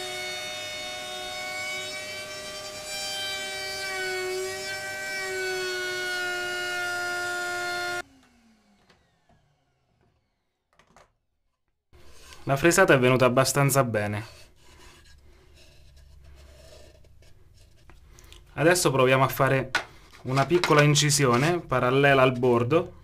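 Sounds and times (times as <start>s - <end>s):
trim router whining: 0.0s - 10.8s.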